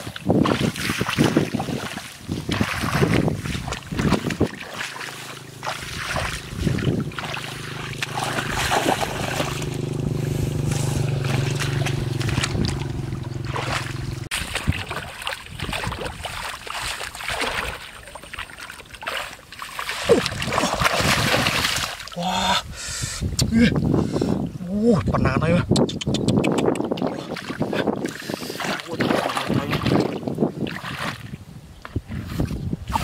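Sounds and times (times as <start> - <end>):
shallow water splashing: 0.0 - 22.2, 26.9 - 31.4
steady low hum: 2.5 - 18.1.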